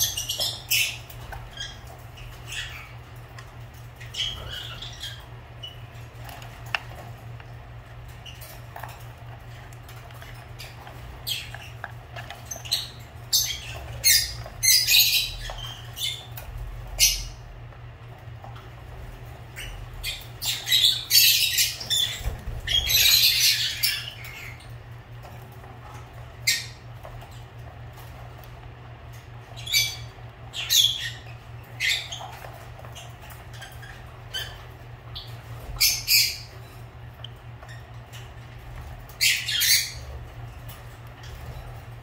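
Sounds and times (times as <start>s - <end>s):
lovebirds chirping: 0.0s - 42.0s.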